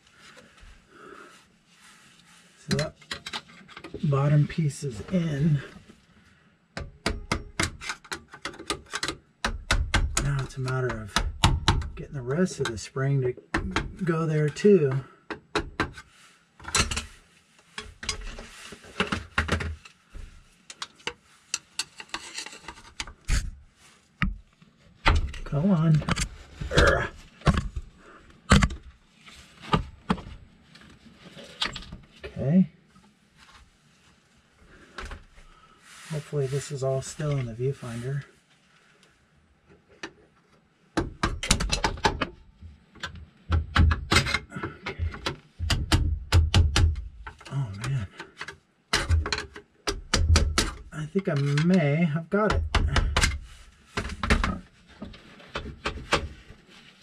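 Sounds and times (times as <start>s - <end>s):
metal clicks and scrapes: 2.6s - 4.4s, 7.4s - 9.2s, 15.9s - 24.2s.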